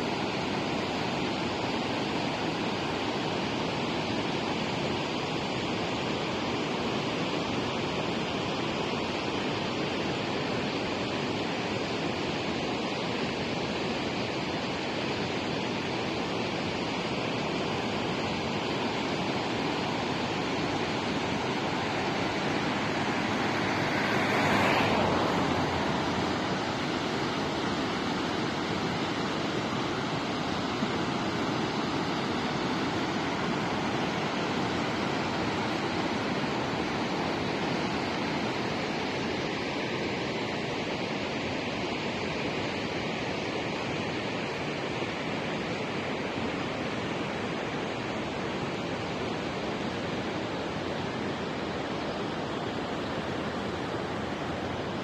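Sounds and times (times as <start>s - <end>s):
river rushing roar: 0.0s - 55.0s
water whoosh: 21.0s - 28.1s.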